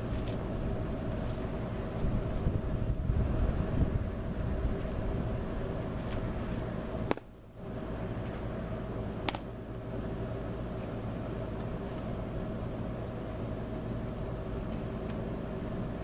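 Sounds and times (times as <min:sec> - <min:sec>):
steady background noise: 0:00.0 - 0:16.0
baseball popping into mitt: 0:07.1 - 0:07.3, 0:09.2 - 0:09.5.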